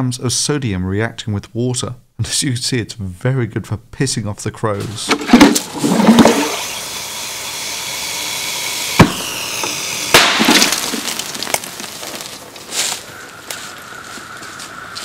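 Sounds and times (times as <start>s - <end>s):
sharp crack: 5.0s - 13.6s
crackling of burning metal: 5.6s - 15.0s
sodium fizzing on water: 5.7s - 12.3s.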